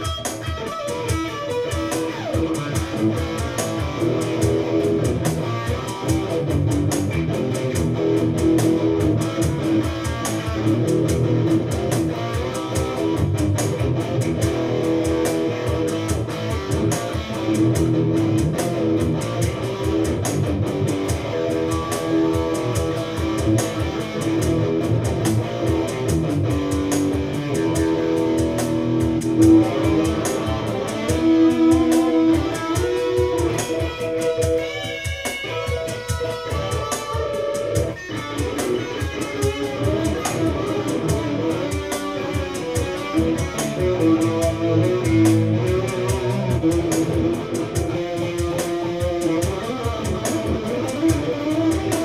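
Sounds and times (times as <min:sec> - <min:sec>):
electric guitar solo: 0:00.0 - 0:52.0.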